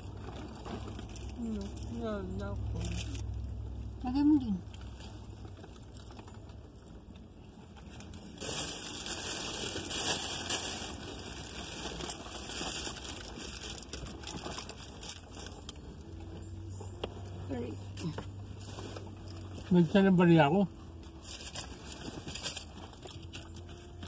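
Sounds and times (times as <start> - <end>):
food packaging crinkling: 7.8 - 16.2.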